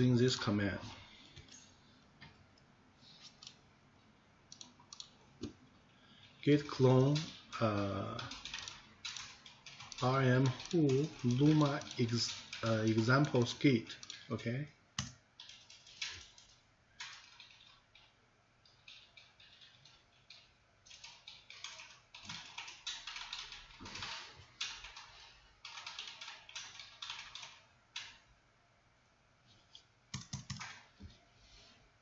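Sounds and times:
computer keyboard typing: 4.5 - 5.6, 6.2 - 14.4, 15.0 - 28.3, 30.1 - 30.9.

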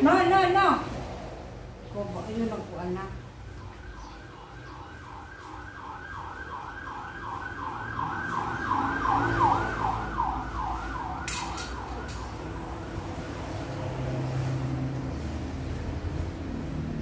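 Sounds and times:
emergency siren yelping: 3.5 - 13.0.

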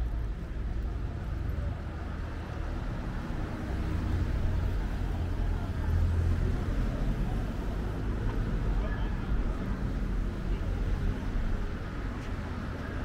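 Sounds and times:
cars passing with low rumble: 0.0 - 13.0.

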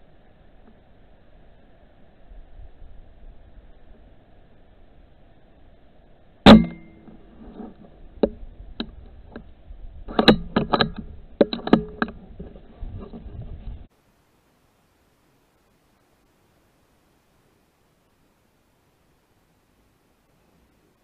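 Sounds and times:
faint recorder hiss: 0.0 - 21.0
rifle shot: 6.5 - 7.2.

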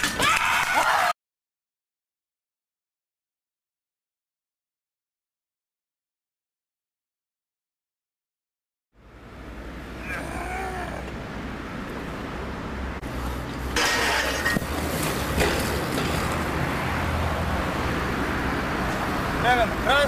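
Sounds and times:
person calling: 10.0 - 11.2
bike tyres on concrete: 13.0 - 17.0
bike knocks: 13.8 - 16.4.

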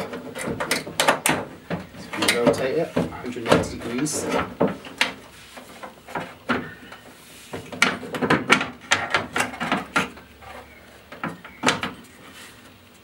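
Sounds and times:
metal knocks and scrapes in door: 7.5 - 12.0.

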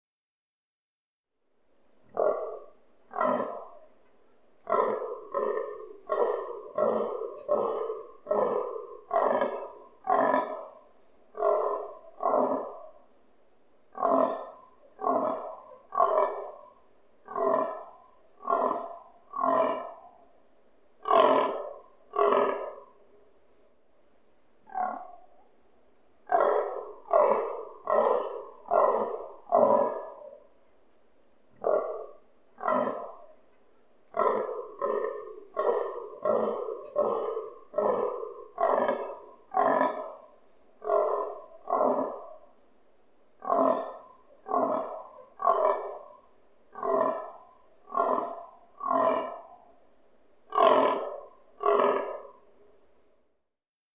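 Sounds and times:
stag grunting: 4.6 - 10.7, 31.6 - 33.2, 34.1 - 40.2.

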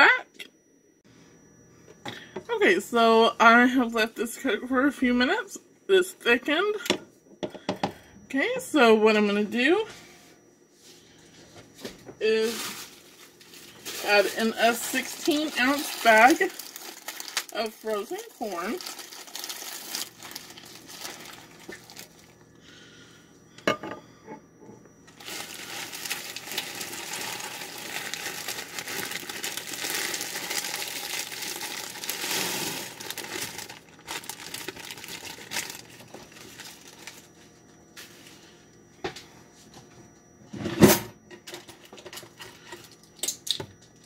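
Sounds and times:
plastic bag crinkling: 12.3 - 22.4, 25.1 - 37.3
frozen corn pouring into saucepan: 13.8 - 22.3, 25.2 - 37.2.

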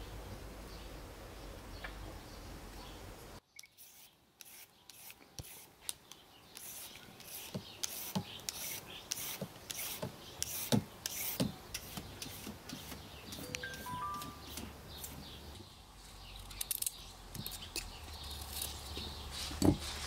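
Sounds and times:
blade scraping carrot skin: 6.6 - 13.5.

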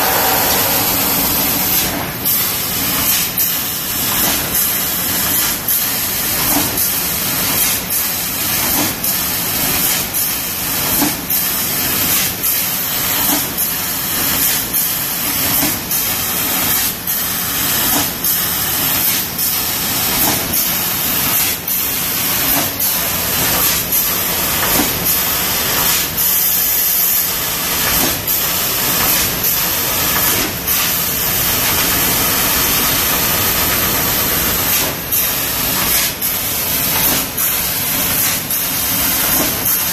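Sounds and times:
laser cutter gas jet hissing: 0.0 - 2.8.

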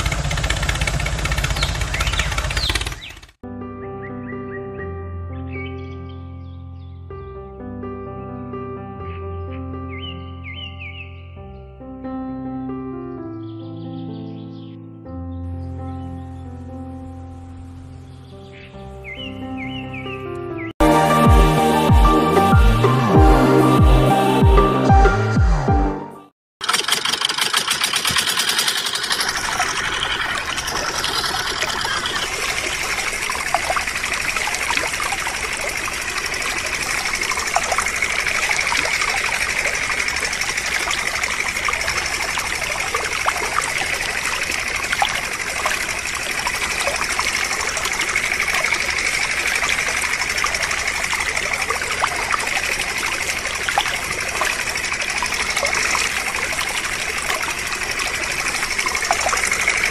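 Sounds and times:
water trickling and splashing on sand: 26.9 - 59.9
small droplet ticks: 33.3 - 57.6.

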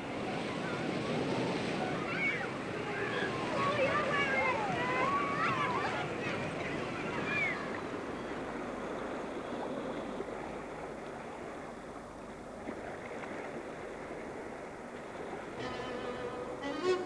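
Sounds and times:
sea water and small waves: 0.0 - 17.0.

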